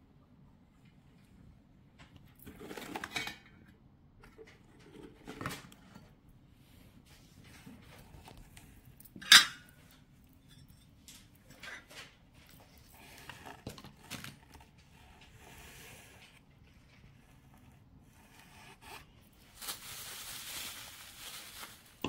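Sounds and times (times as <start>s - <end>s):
soft rustling: 6.0s - 22.0s.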